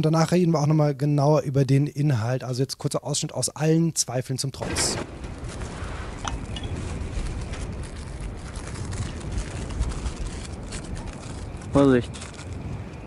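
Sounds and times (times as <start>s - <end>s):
low wind rumble: 4.6s - 13.0s.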